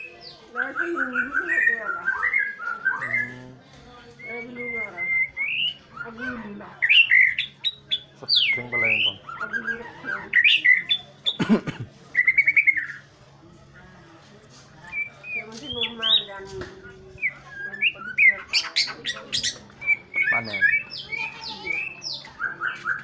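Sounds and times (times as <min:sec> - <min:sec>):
songbird singing whistles and trills: 0:00.0 - 0:03.5, 0:04.1 - 0:11.4, 0:12.1 - 0:13.0, 0:14.8 - 0:23.0.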